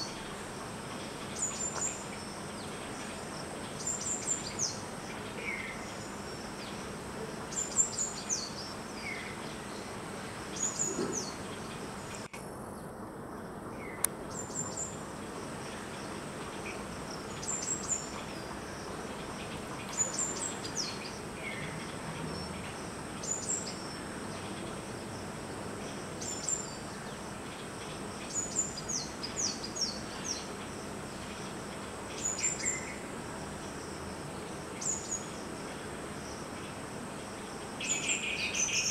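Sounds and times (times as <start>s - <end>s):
high insect drone: 0.0s - 38.9s
small bird calling: 1.0s - 12.3s.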